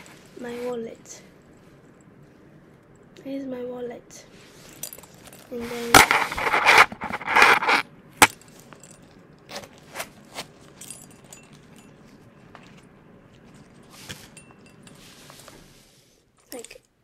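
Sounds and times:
metal zip clinks: 0:04.7 - 0:12.2.

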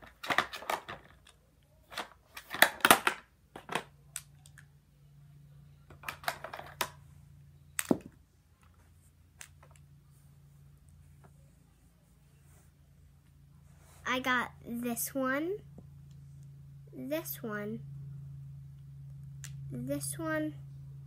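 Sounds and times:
plastic makeup items rattling: 0:00.0 - 0:03.9, 0:05.9 - 0:07.0
faint low hum: 0:00.0 - 0:21.0.

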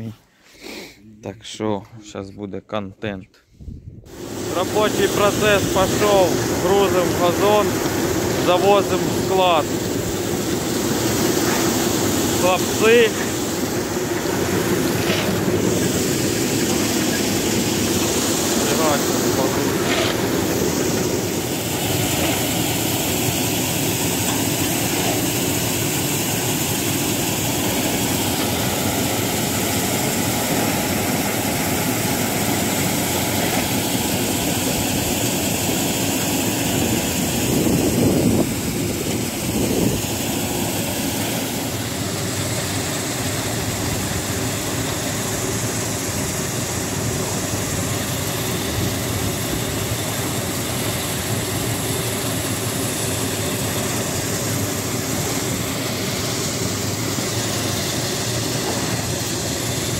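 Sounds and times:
grain loader running: 0:04.1 - 0:59.9
shovels scraping grain: 0:19.5 - 0:20.3.

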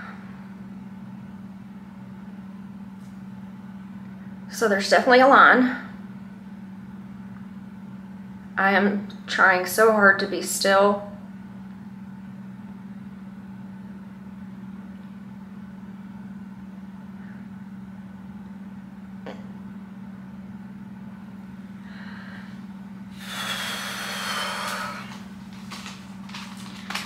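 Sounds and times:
steady low hum: 0:00.0 - 0:27.0
rush of breathy noise: 0:21.8 - 0:25.1.

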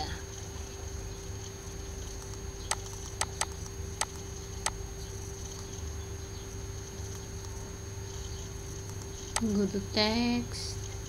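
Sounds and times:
steady low hum: 0:00.0 - 0:11.0
computer mouse clicks: 0:02.2 - 0:04.8.

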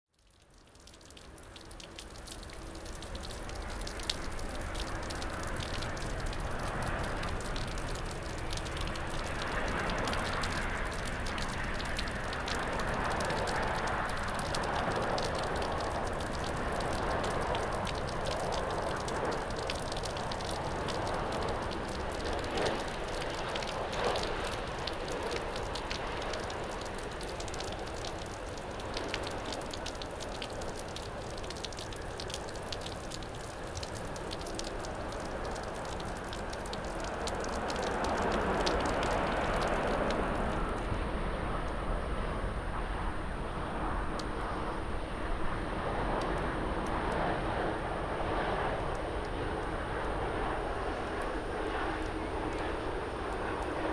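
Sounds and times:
heavy rain falling: 0:00.8 - 0:40.9
jet airplane approaching: 0:02.1 - 0:53.9.

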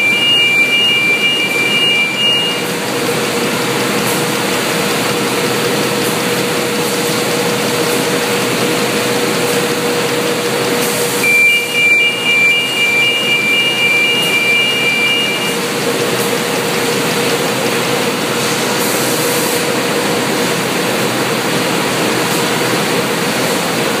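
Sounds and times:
two-tone warning signal: 0:00.0 - 0:02.9, 0:11.2 - 0:15.7
conveyor machinery noise: 0:00.0 - 0:24.0.

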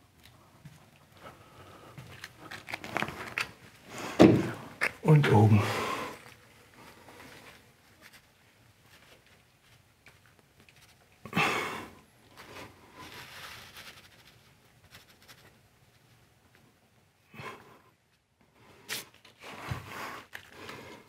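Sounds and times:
noisy rustle: 0:12.3 - 0:16.2.

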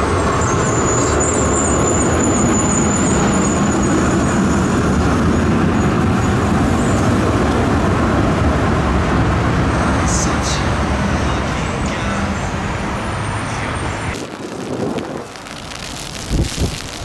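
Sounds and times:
tram rumbling on rails: 0:00.0 - 0:15.4
high-pitched wheel squeal: 0:00.3 - 0:07.1.

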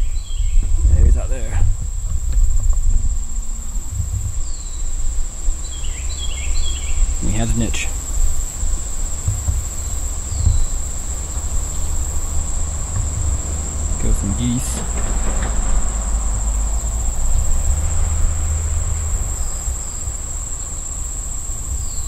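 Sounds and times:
insects trilling: 0:00.0 - 0:22.0.

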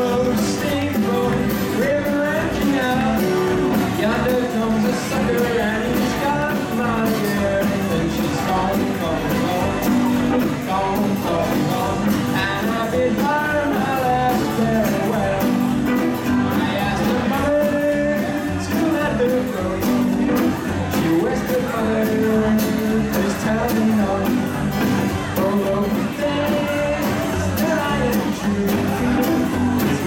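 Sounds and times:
rockabilly band playing live: 0:00.0 - 0:30.0.

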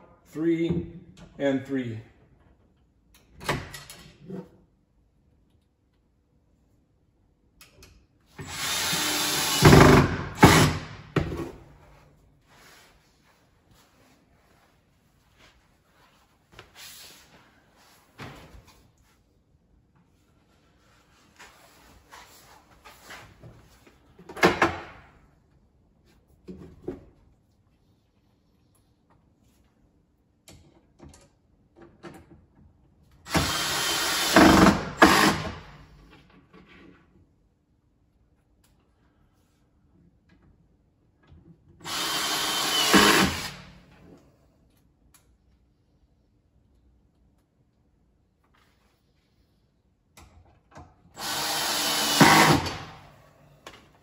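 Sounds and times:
cordless drill driving a screw: 0:08.4 - 0:10.7, 0:33.3 - 0:35.5, 0:41.8 - 0:43.6, 0:51.2 - 0:52.9.

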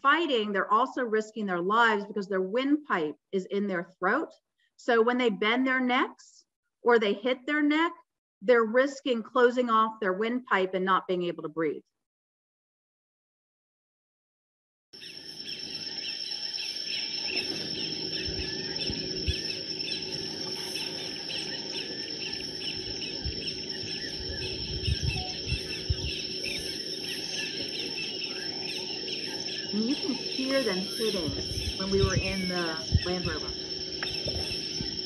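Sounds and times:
bird chirps: 0:15.0 - 0:35.0
high insect drone: 0:15.0 - 0:35.0
low thumps: 0:22.8 - 0:26.7, 0:31.0 - 0:35.0.

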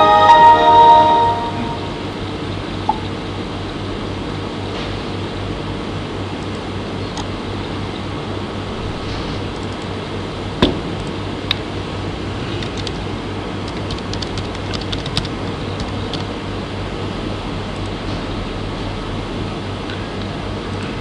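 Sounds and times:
low hum and hiss: 0:00.0 - 0:21.0
computer keyboard taps: 0:13.7 - 0:16.3.

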